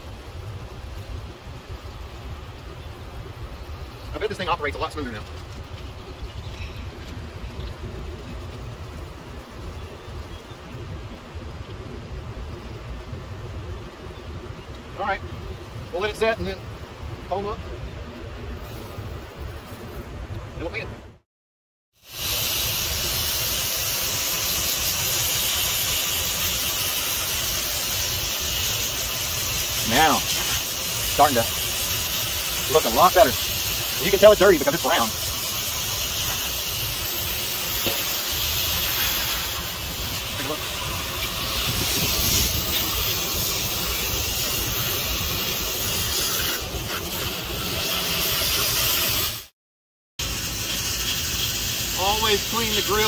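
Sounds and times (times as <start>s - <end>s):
hose nozzle spraying water jet: 22.0s - 49.5s, 50.2s - 53.0s.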